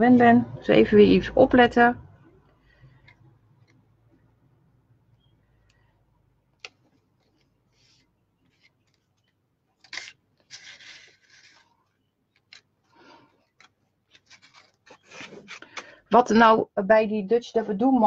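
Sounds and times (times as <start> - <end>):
paper rustling and scraping: 6.8 - 15.8.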